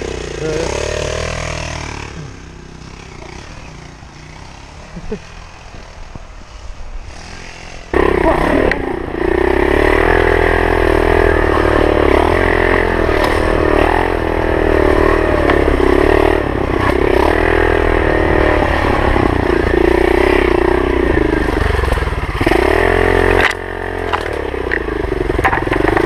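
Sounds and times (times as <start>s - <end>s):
small motorbike engine revving: 0.0s - 26.0s
bike knocks and rattles: 23.3s - 26.0s.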